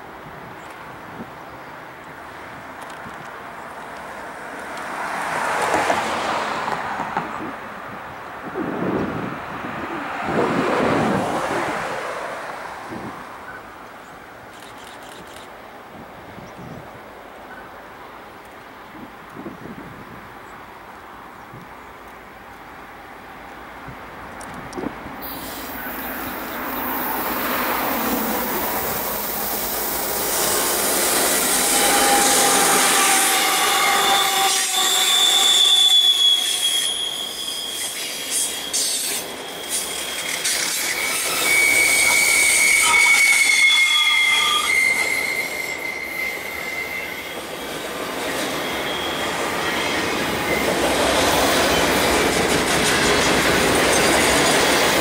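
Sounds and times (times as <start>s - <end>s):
freight train rumbling past: 4.0s - 13.8s, 24.9s - 55.0s
train wheels squealing: 25.2s - 55.0s.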